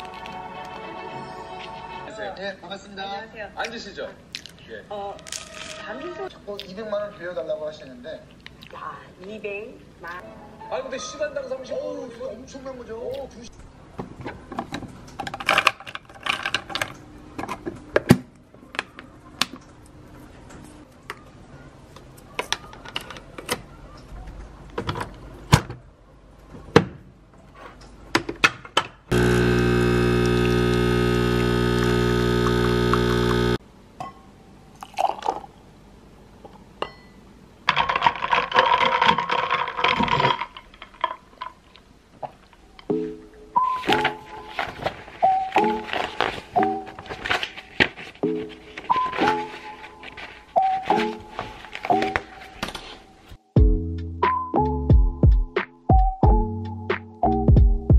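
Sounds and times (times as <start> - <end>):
coffee machine pump buzzing: 29.1 - 33.6.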